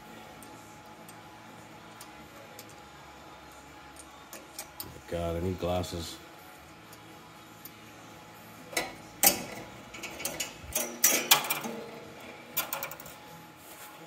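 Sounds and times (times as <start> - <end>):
metal parts clicking and clinking: 3.9 - 5.0, 8.7 - 13.2.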